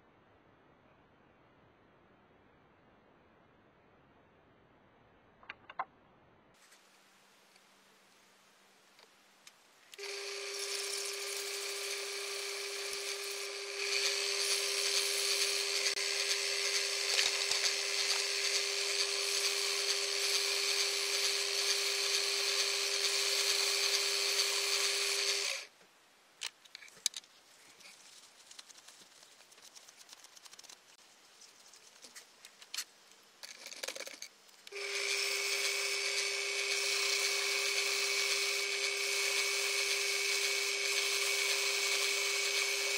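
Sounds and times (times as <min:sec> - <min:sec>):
lathe whining: 0:10.0 - 0:25.7, 0:34.7 - 0:42.9.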